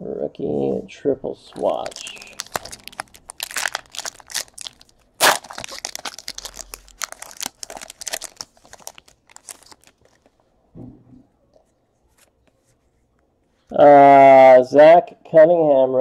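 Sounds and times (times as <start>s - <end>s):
foil wrapper tearing and crinkling: 1.6s - 10.3s.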